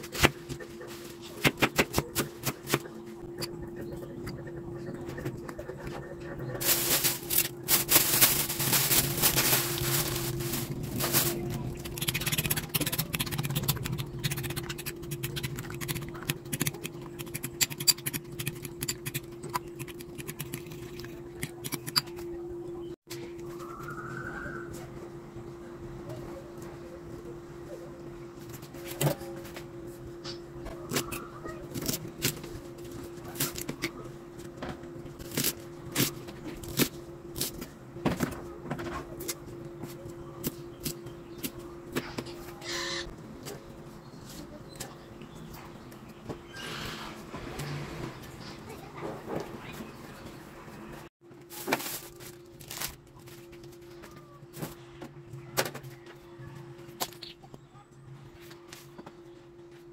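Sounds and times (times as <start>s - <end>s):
steady hum: 0.0s - 46.5s.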